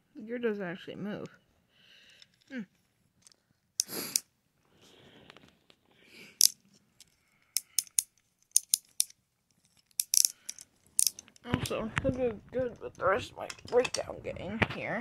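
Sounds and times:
toy handling rustle: 6.4s - 14.1s.

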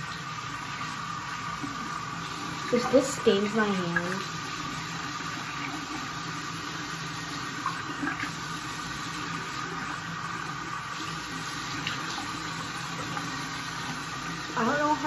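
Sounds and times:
sink tap running: 0.0s - 15.0s
small water splashes: 2.6s - 4.7s.

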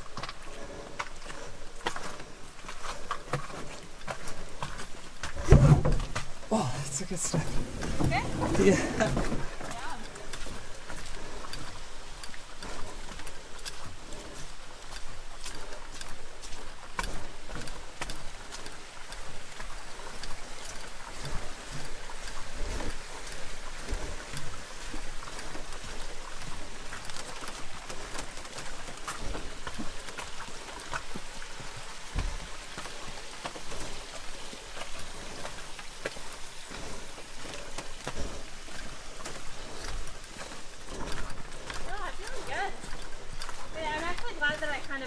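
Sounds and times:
footsteps crunching on rocky trail: 0.0s - 45.0s
low thumps of canoe: 5.2s - 6.6s, 7.3s - 9.9s.

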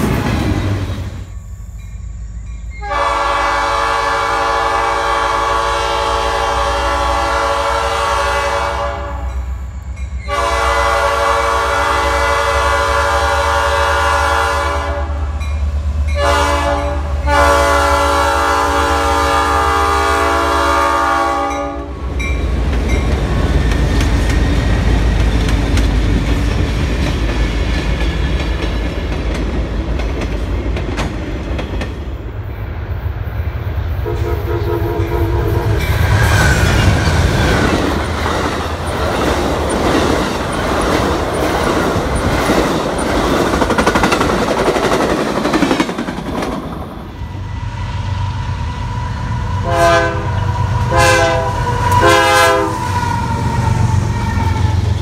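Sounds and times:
train cars rumbling and clattering: 0.0s - 55.0s
locomotive air horn: 2.8s - 9.4s, 10.3s - 15.4s, 16.2s - 22.0s, 34.0s - 37.0s, 48.7s - 55.0s.

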